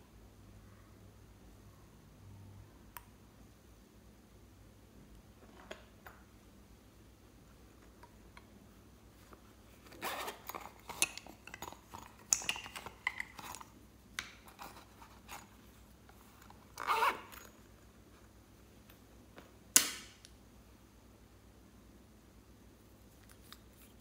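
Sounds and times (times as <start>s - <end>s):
zipper being unzipped and zipped: 9.8s - 10.9s, 16.7s - 17.5s.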